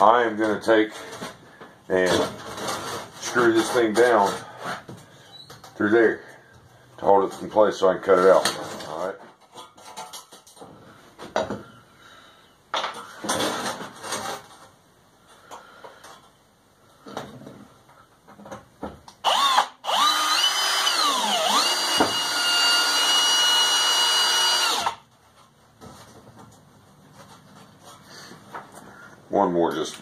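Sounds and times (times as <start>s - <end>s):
cordless drill driving screw: 19.2s - 25.0s.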